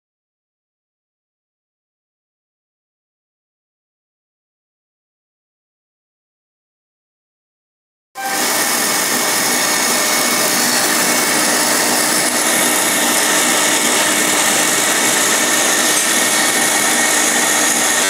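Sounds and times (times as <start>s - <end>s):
stand mixer motor whirring: 8.2s - 18.0s.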